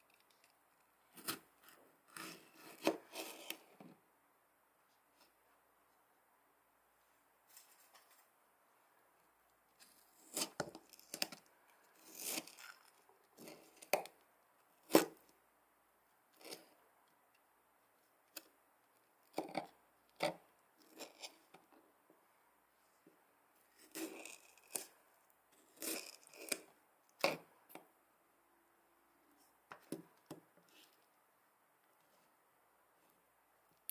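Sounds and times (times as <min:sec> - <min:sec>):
knife slicing tomato on board: 0:02.2 - 0:03.6.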